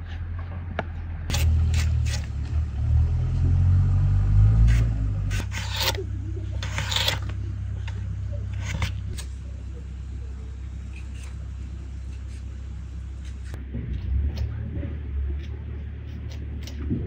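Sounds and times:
low rumble: 0.0 - 17.0
slicer scraping through potato: 1.3 - 3.4, 4.4 - 9.2, 15.2 - 16.9.

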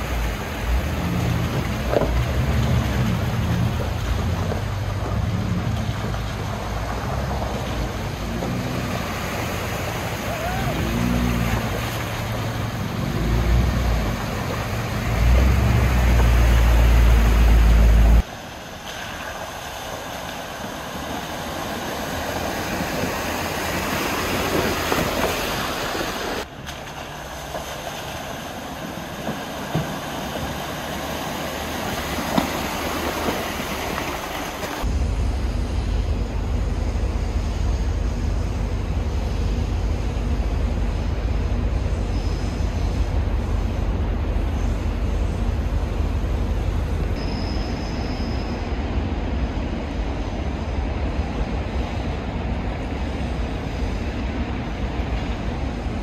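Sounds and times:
tyres splashing in water: 0.0 - 34.9
truck engines rumbling: 0.0 - 56.0.

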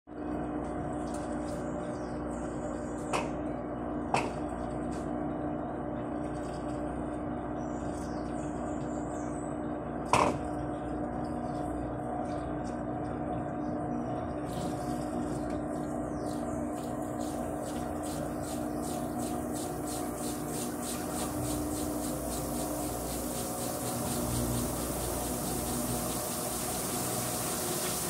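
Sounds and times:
washing machine motor hum: 0.1 - 28.0
rhythmic ticking speeding up: 16.8 - 28.0.

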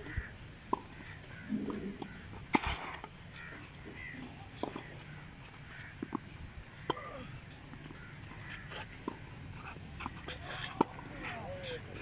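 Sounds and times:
tennis ball bouncing: 0.7 - 3.2, 4.6 - 5.1, 5.9 - 6.3, 6.9 - 12.0.

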